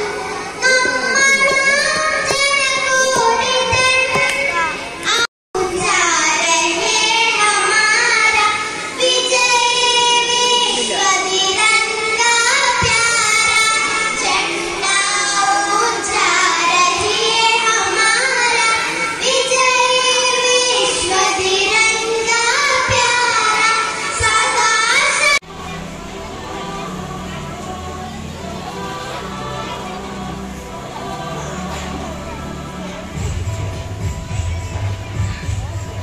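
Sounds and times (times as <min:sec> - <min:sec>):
girls singing together: 0:05.8 - 0:25.4, 0:26.0 - 0:33.5.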